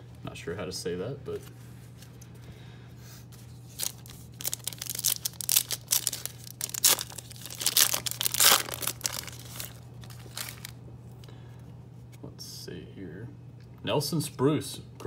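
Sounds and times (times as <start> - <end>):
foil wrapper tearing and crinkling: 3.7 - 10.8.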